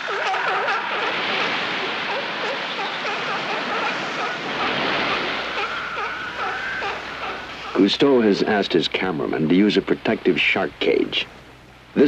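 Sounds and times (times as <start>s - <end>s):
seals bleating and calling: 0.0s - 8.3s
surf washing: 0.0s - 12.0s.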